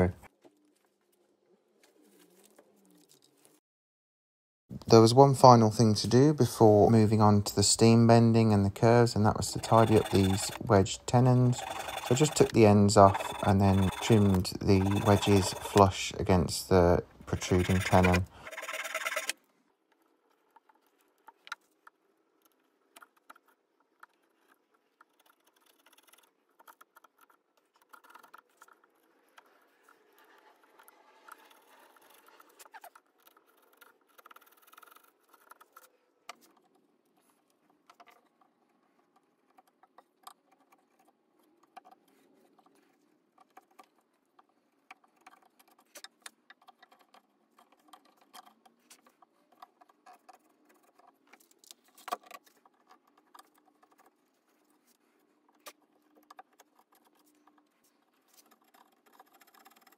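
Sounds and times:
chisel scraping wood: 8.4 - 16.2, 17.2 - 19.4.

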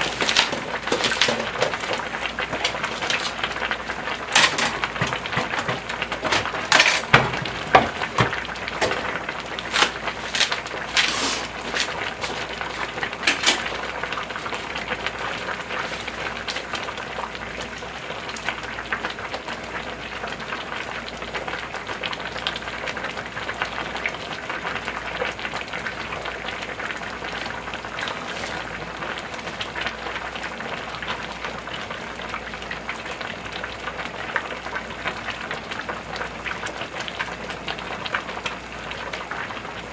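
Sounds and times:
stew boiling in stockpots: 0.0 - 39.9.

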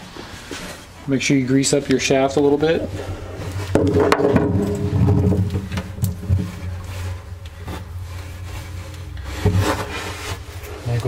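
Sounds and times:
steady low hum: 0.0 - 11.0
light scraping: 2.6 - 11.0.

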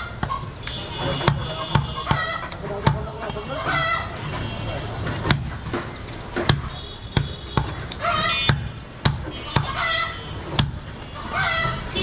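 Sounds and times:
cleaver chopping on wooden block: 1.2 - 3.4, 5.2 - 9.7.

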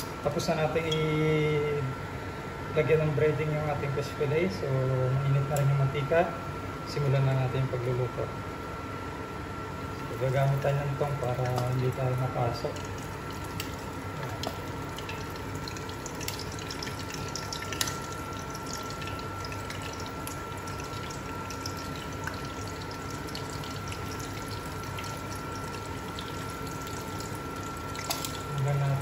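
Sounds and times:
fish frying in hot oil: 10.0 - 29.0.

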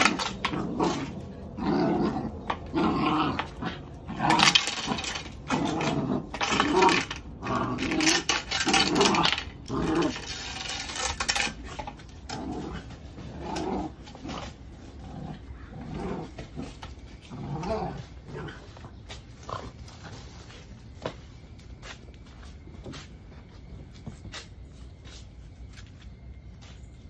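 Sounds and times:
puppy growling in play: 0.0 - 20.6.

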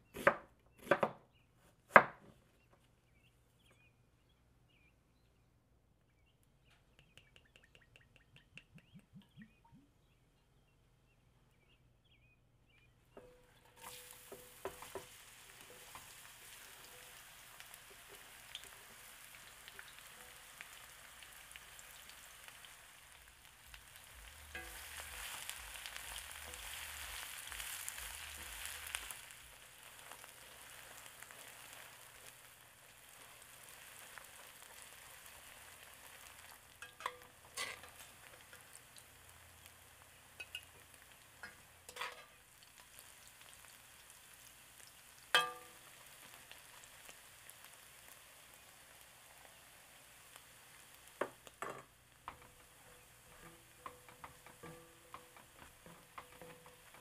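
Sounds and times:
onions sizzling in oil: 13.6 - 57.0
metal spatula scraping pan: 24.3 - 27.2, 36.8 - 38.0, 52.4 - 57.0.

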